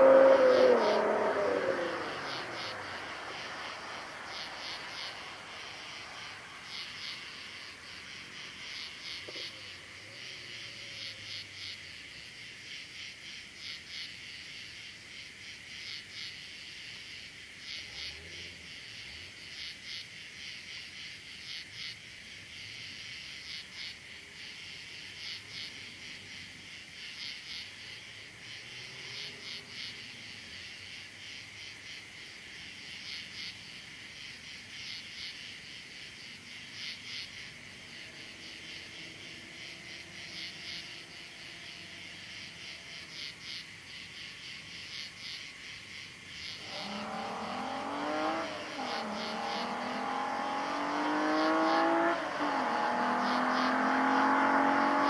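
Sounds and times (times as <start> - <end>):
crickets chirping: 0.0 - 55.0.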